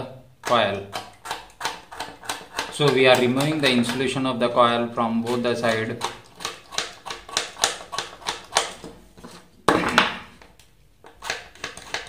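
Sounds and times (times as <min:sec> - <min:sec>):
knife scraping wire: 0:00.9 - 0:04.1.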